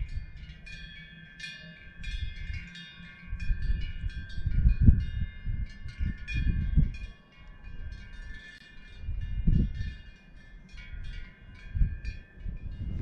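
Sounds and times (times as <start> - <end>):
wind gusting on microphone: 0.0 - 1.0, 1.6 - 13.0
cowbells ringing and clanking: 0.0 - 13.0.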